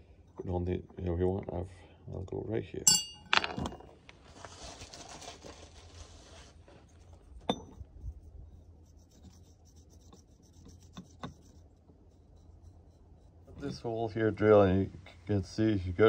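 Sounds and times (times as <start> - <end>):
metal pipe scraping on metal: 2.9 - 3.6, 6.9 - 14.2.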